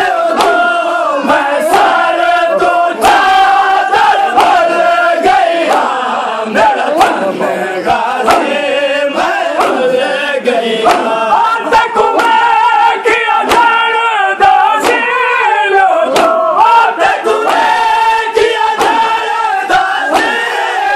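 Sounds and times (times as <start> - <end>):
hands slapping chests: 0.0 - 10.2, 10.8 - 15.3, 16.0 - 20.9
men chanting in unison: 0.0 - 20.9.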